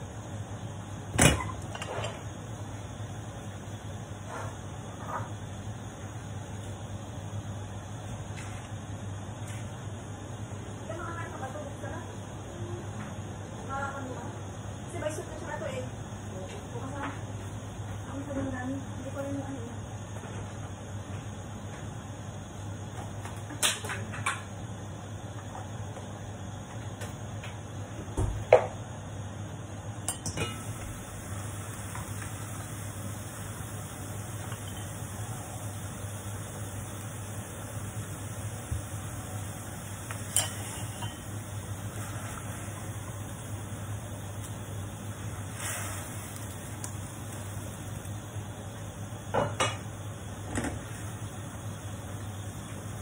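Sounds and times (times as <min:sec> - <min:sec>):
steady low hum: 0:24.2 - 0:53.0.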